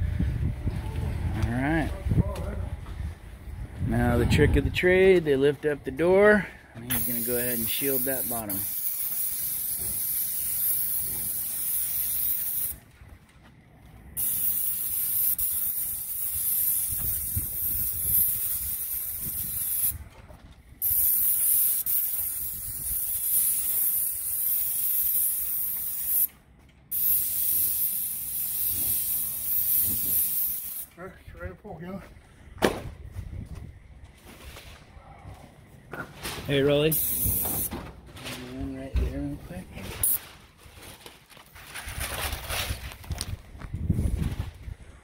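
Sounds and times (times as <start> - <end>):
paint spray gun hissing: 6.9 - 12.8, 14.2 - 20.0, 20.8 - 26.3, 26.9 - 30.9, 36.9 - 37.7.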